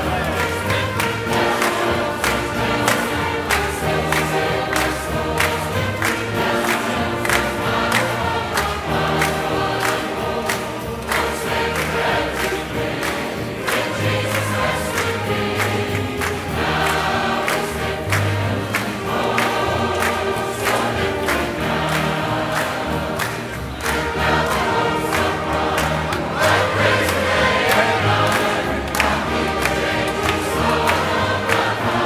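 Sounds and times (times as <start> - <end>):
band accompaniment: 0.0 - 32.0
choir singing gospel: 0.0 - 32.0.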